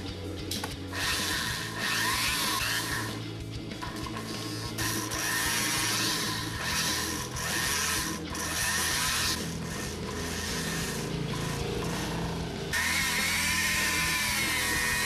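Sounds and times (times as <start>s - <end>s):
rotary tool motor hum: 0.9s - 3.2s, 3.8s - 15.0s
tool scraping spinning metal: 0.9s - 15.0s.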